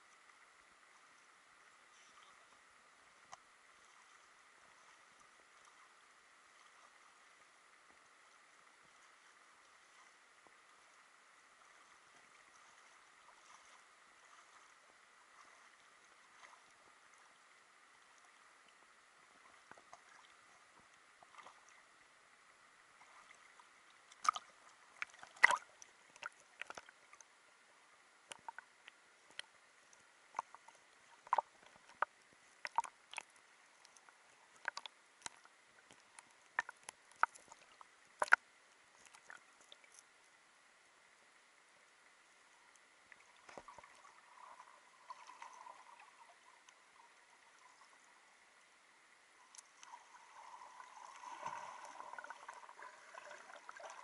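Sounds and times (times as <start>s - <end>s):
sharp underwater clicks and taps: 34.6s - 37.6s, 38.2s - 38.4s.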